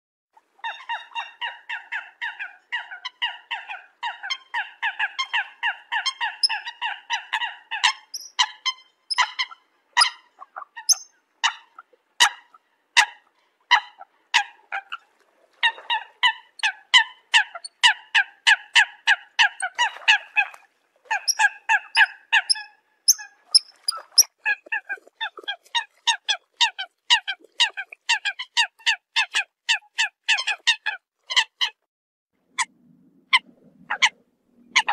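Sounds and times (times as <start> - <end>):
coot calls: 0.6 - 15.0, 33.3 - 34.9.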